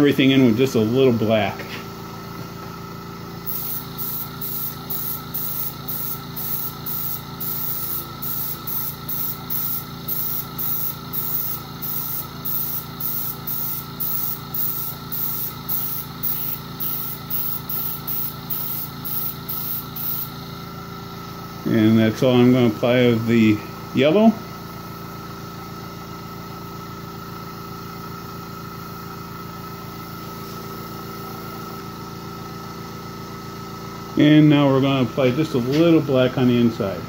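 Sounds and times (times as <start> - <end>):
compressor pump humming: 0.0 - 37.0
airbrush hissing puffs: 3.4 - 20.7.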